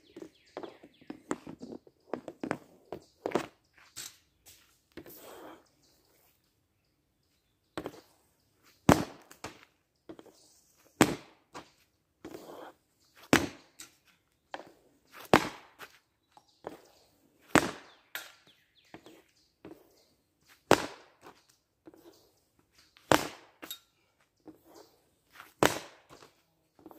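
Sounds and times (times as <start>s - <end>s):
hockey stick hitting pucks: 17.5s - 18.4s, 20.7s - 21.4s, 25.5s - 26.3s.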